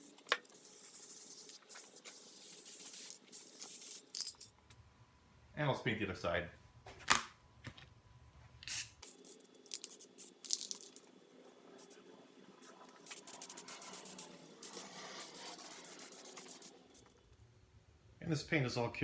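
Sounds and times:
spray-paint can hissing: 0.1s - 4.2s, 8.7s - 10.7s, 13.0s - 17.0s.

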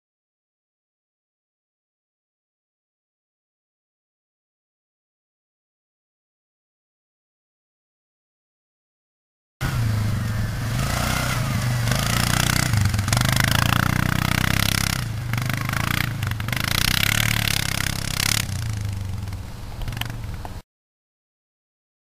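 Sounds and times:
quad bike engine revving: 9.6s - 20.6s.

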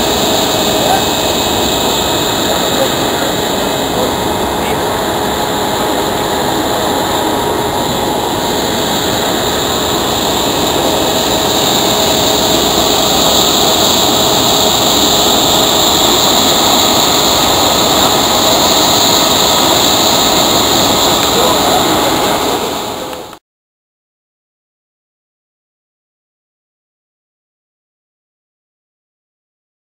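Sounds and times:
conveyor mechanical roar: 0.0s - 23.4s.

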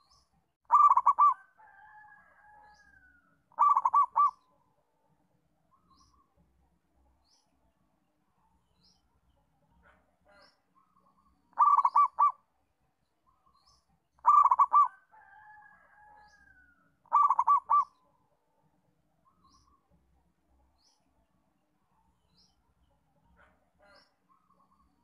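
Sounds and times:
dove cooing: 0.7s - 1.6s, 3.5s - 4.5s, 11.5s - 12.4s, 14.2s - 15.0s, 17.1s - 18.0s
drawn-out bird call: 0.7s - 1.6s, 2.7s - 4.5s, 10.3s - 12.5s, 14.2s - 15.5s, 16.2s - 18.0s.

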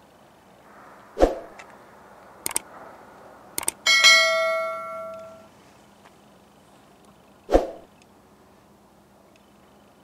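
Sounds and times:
bell-like ding: 3.9s - 5.5s.

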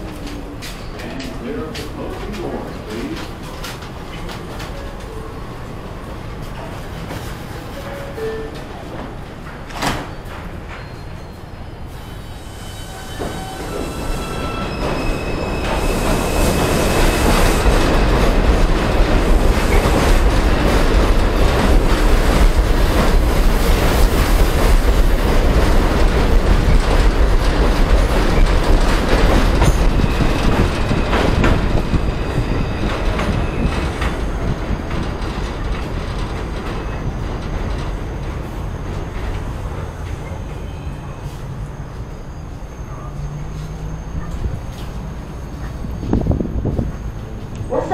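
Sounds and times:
train cars rumbling and clattering: 0.0s - 47.9s
wheel squeal: 12.4s - 17.3s.

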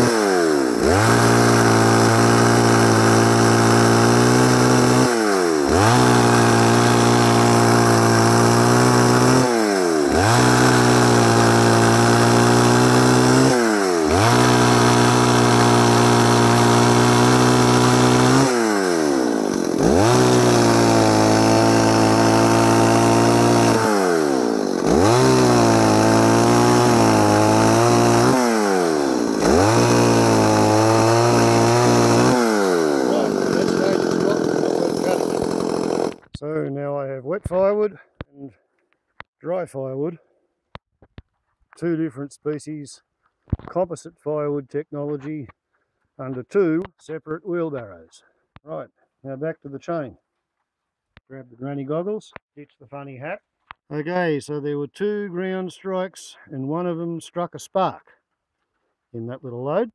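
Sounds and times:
chainsaw cutting wood: 0.0s - 36.4s.

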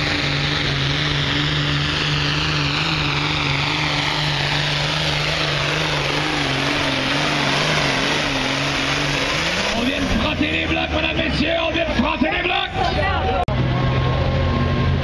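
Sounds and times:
high engine whine: 0.0s - 15.0s
tractor engine at full throttle: 0.0s - 15.0s.

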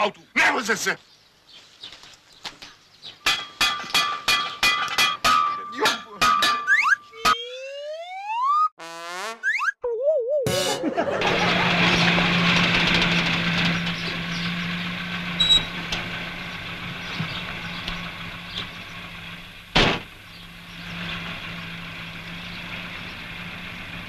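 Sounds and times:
car engine running: 10.9s - 24.0s
sharp thump: 19.8s - 20.2s.

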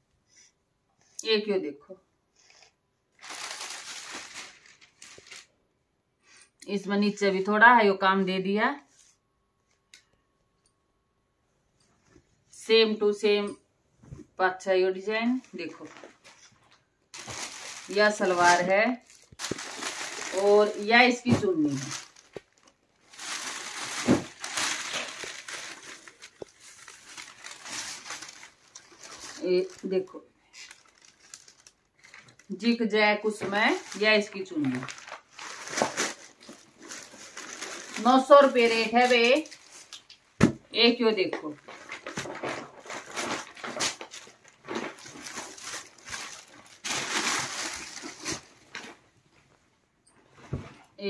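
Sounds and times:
cloth rustling and crumpling: 3.2s - 5.5s, 15.3s - 32.5s, 33.5s - 40.2s, 41.5s - 49.2s.

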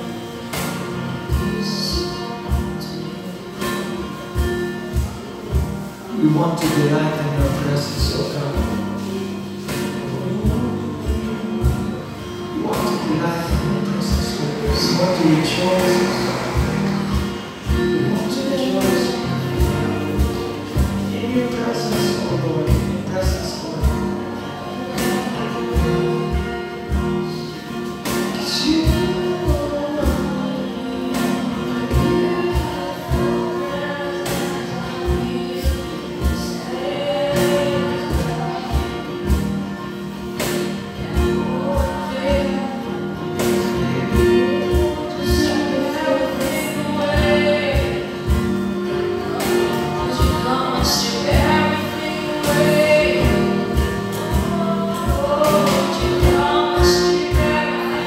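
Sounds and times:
strummed guitars: 0.0s - 58.0s
drum kit beat: 0.4s - 58.0s
woman singing: 28.4s - 58.0s.

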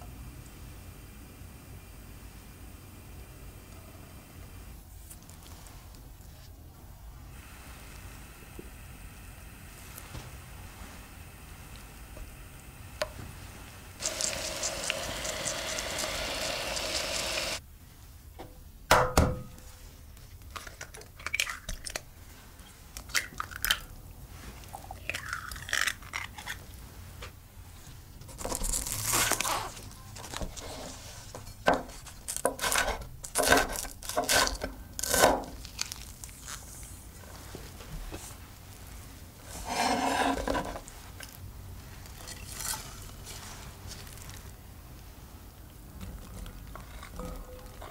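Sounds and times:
food sizzling in oil: 13.9s - 17.6s.

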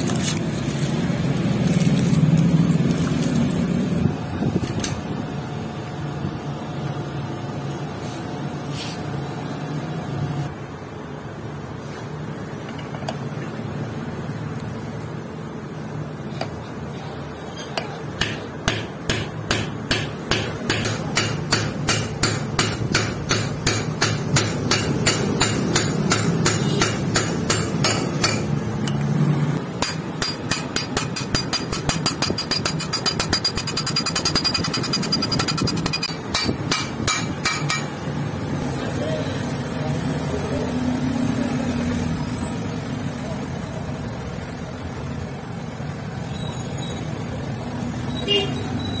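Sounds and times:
hammer striking metal tube: 17.8s - 28.6s, 29.7s - 38.0s.

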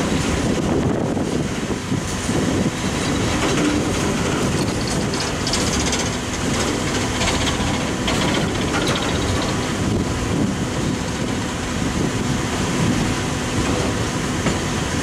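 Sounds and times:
steel wheels rumbling on rail: 0.0s - 15.0s
wheels clacking over rail joints: 3.0s - 10.0s.

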